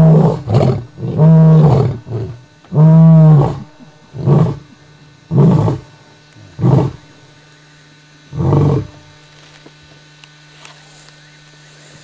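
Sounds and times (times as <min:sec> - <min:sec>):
lion grunting: 0:00.0 - 0:07.0, 0:08.3 - 0:09.0
lion roaring: 0:00.0 - 0:07.0, 0:08.3 - 0:09.0.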